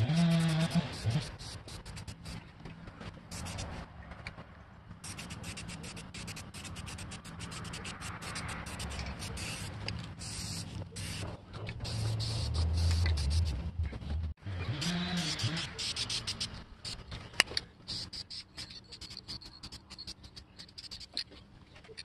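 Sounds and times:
spray paint can hissing: 0.0 - 2.4, 3.3 - 3.8, 5.0 - 13.6, 14.8 - 17.1, 17.9 - 21.2.

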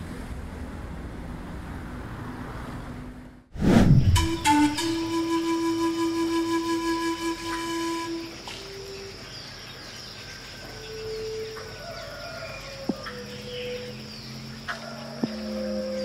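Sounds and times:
pan flute note: 4.2 - 8.7
birds whistling long calls: 4.2 - 14.4
insects buzzing: 4.2 - 16.0.

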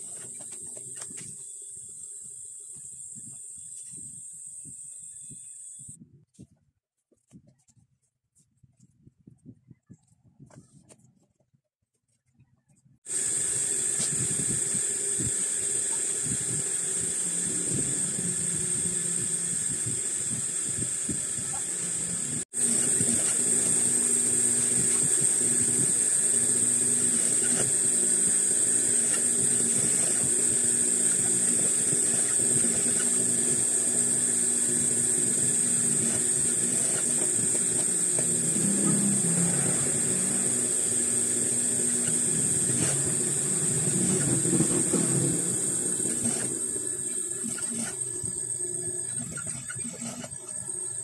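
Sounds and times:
sewing machine running: 13.1 - 51.0.

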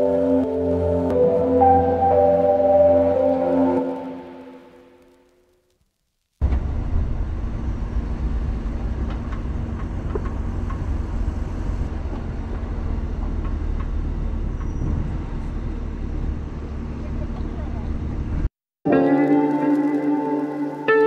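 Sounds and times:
vehicle engine low rumble: 6.4 - 18.5.

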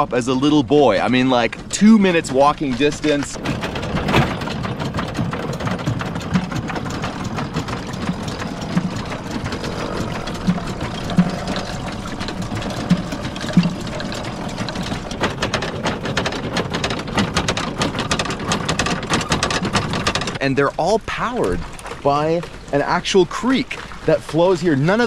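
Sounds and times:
running water: 0.0 - 25.0
mill machinery knocking: 0.9 - 20.4.

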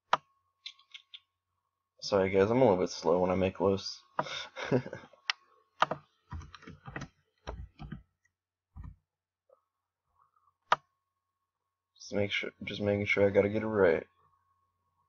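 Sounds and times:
keyboard typing: 5.8 - 8.0.

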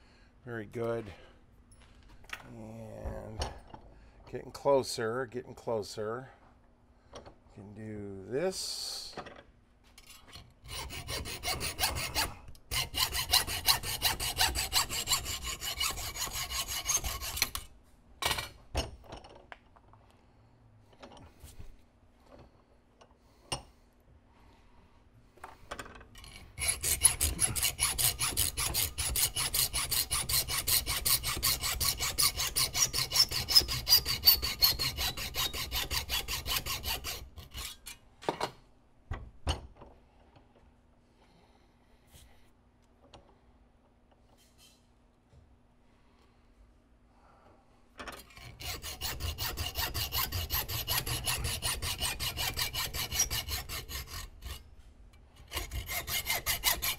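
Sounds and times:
hacksaw cutting metal: 10.0 - 17.7, 26.2 - 38.0, 48.1 - 54.6, 55.4 - 56.9.

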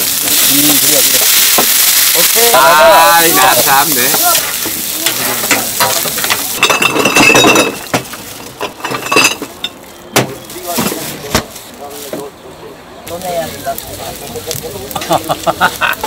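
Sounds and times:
meat sizzling on a griddle: 0.0 - 7.1, 7.8 - 8.9, 13.0 - 16.0
glass bottles clinking: 4.4 - 9.8.

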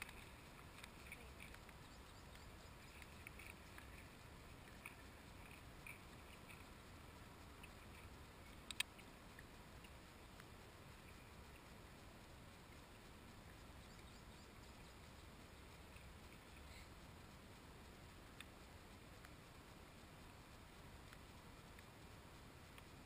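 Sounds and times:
faint ticks: 0.0 - 23.0
sharp click: 8.6 - 9.0.

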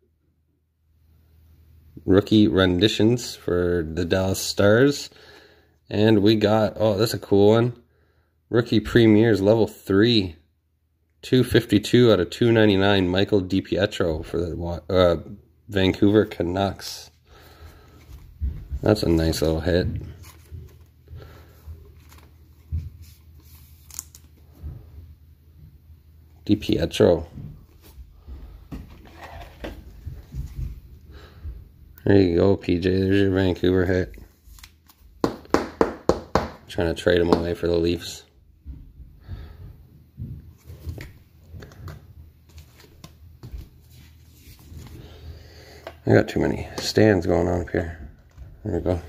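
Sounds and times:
plastic sleeve rustling: 17.3 - 24.7, 40.6 - 45.4.

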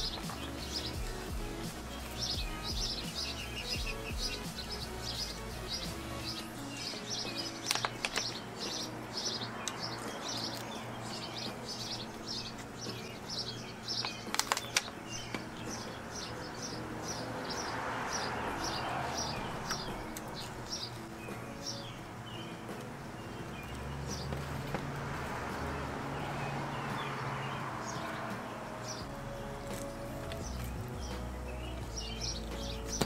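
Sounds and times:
bird chirping: 0.0 - 33.0
faint background music: 0.0 - 33.0
sharp clicks: 7.6 - 8.4, 14.0 - 15.5.

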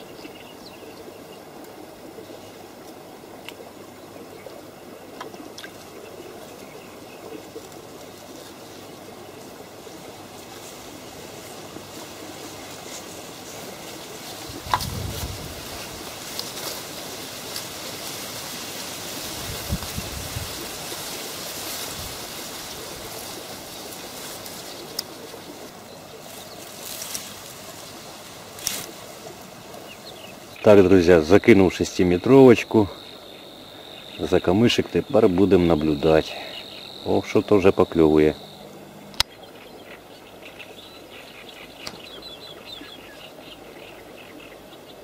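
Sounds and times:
water lapping among reeds: 0.0 - 45.0
wind rumble on microphone: 14.4 - 16.2, 19.2 - 20.8.

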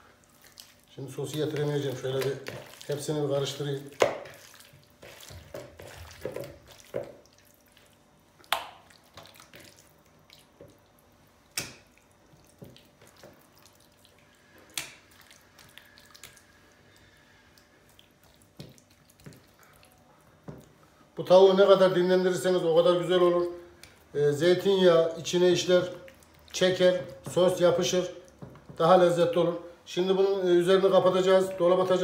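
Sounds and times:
hands squishing wet chicken: 0.0 - 20.8, 23.7 - 29.0
wet drips: 0.1 - 20.8, 23.7 - 24.1, 25.7 - 27.3
sharp wet smacks: 0.4 - 3.1, 3.7 - 10.8, 11.5 - 14.0, 14.7 - 16.6, 17.5 - 19.9, 23.8 - 24.1.

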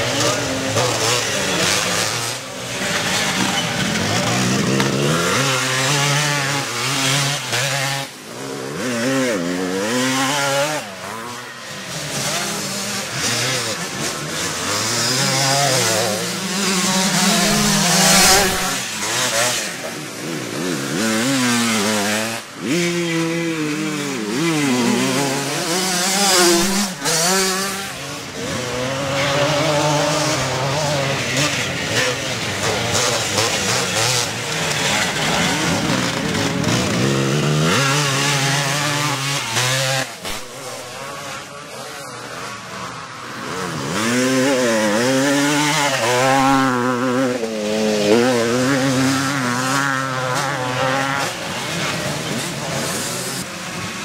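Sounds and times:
motocross bikes revving: 0.0 - 54.0.

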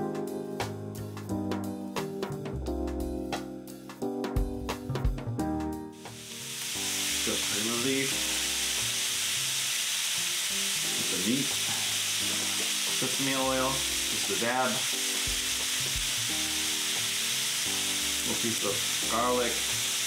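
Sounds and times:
meat sizzling on grill: 5.9 - 20.0
faint background music: 6.0 - 9.3, 10.7 - 20.0.

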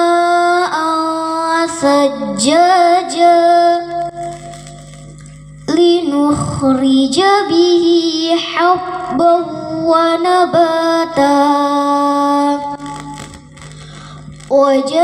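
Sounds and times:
girl chanting into a microphone: 5.7 - 12.9, 14.5 - 15.0.

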